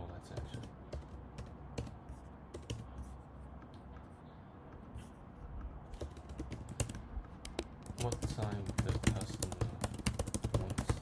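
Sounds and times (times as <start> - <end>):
computer keyboard typing: 0.0 - 3.1, 5.6 - 11.0.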